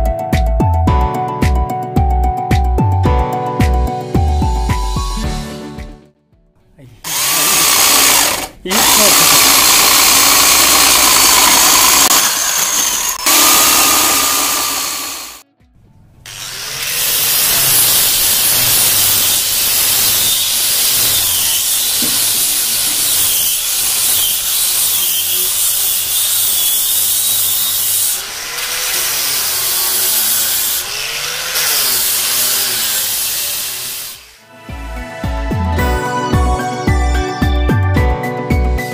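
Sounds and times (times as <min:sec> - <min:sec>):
angle grinder on wood: 0:07.0 - 0:15.4, 0:16.3 - 0:34.4
electric drill boring into wood: 0:07.1 - 0:15.4, 0:16.3 - 0:34.4.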